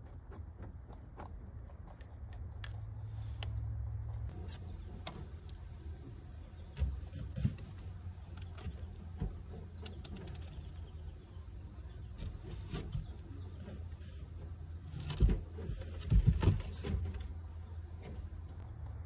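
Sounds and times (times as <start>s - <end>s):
rabbit nibbling grass: 0.0s - 19.0s.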